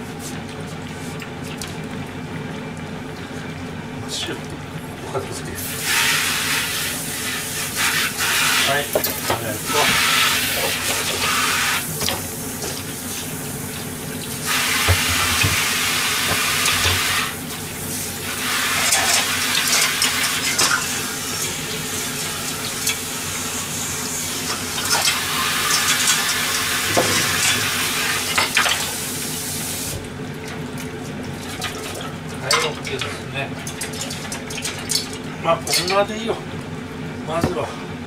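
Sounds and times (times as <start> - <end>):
tap running into metal sink: 14.8 - 17.2, 26.8 - 28.9.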